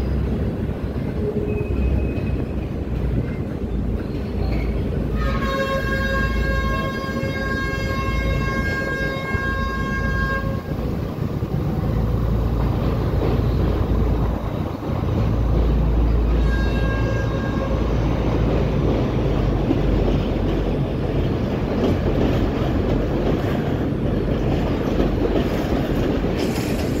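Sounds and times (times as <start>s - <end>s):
train horn blast: 5.1s - 10.8s, 16.3s - 18.2s.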